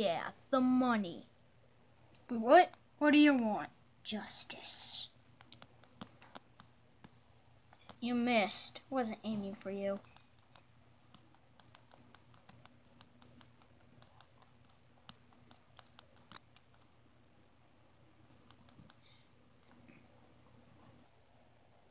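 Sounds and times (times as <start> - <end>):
faint steady hum: 0.0 - 21.9
small clicks and taps: 5.4 - 8.0, 9.9 - 16.9, 18.3 - 20.0.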